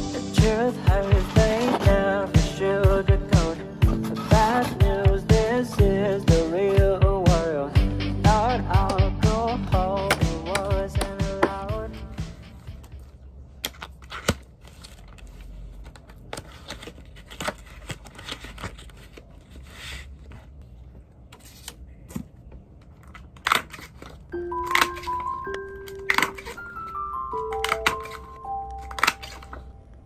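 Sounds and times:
paper and plastic sheets rustling: 0.6 - 2.2, 13.7 - 22.2, 22.8 - 29.7.

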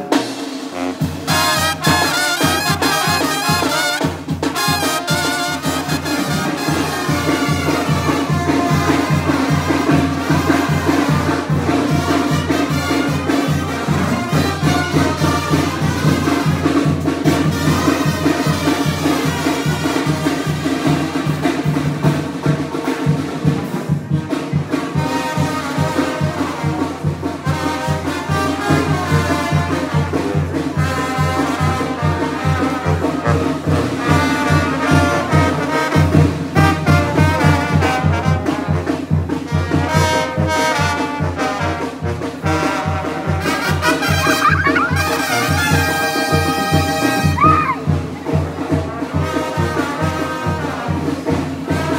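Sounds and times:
brass band playing: 0.0 - 51.9
tuba: 0.0 - 51.9
bass drum beat: 43.2 - 48.3.

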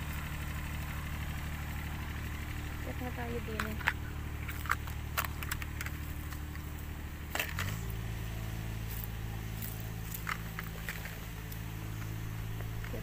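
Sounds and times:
small engine running: 0.0 - 13.0
crunching footsteps: 3.5 - 7.9, 8.8 - 13.0.

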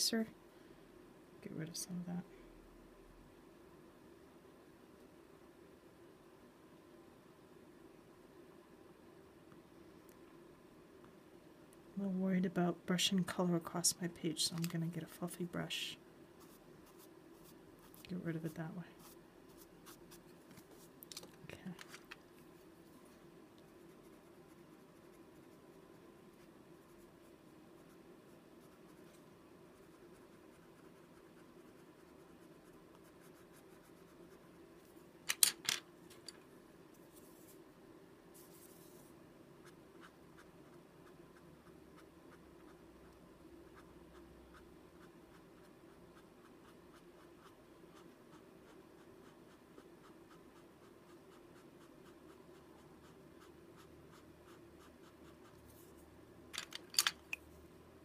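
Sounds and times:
steady low hum: 0.0 - 58.0
pencil scratching on paper: 23.7 - 34.5, 43.7 - 55.9.

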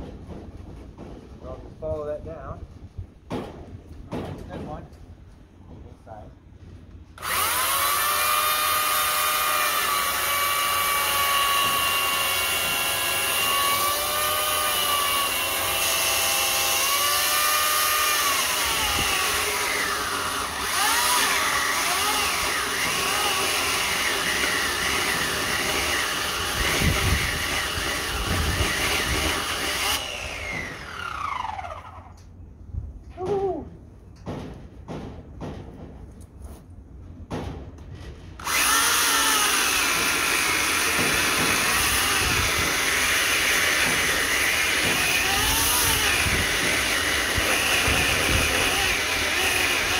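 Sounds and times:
electric chainsaw motor whine: 7.2 - 32.2, 38.4 - 49.9.

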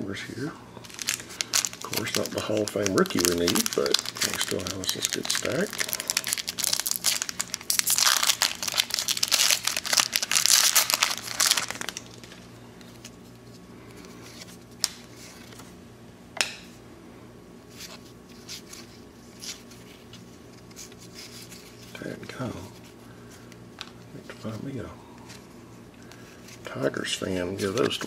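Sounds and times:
foil wrapper tearing and crinkling: 0.8 - 12.5.

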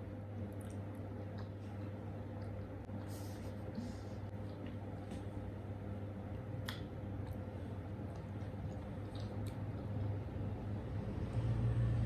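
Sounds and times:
low hum: 0.0 - 12.0
people chewing: 6.6 - 10.4.

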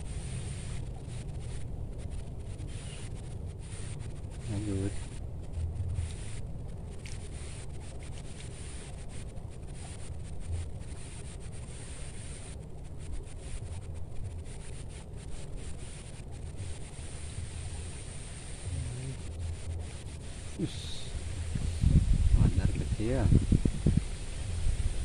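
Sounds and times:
wind buffeting microphone: 18.7 - 25.0.

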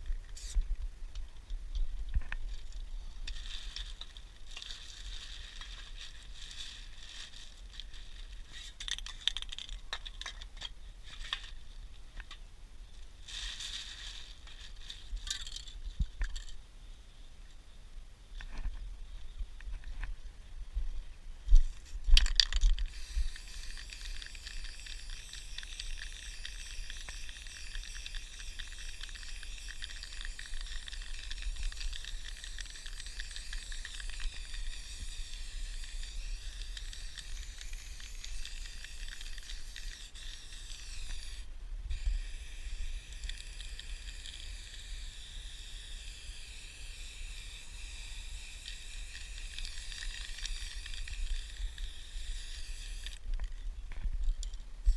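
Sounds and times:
spray paint can hissing: 0.4 - 0.6, 21.6 - 53.2
spray can rattling: 8.5 - 9.8, 13.4 - 15.7, 21.6 - 53.2.

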